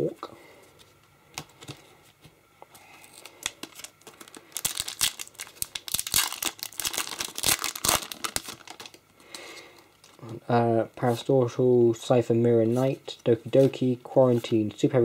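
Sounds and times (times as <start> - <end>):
foil wrapper tearing and crinkling: 3.0 - 9.0.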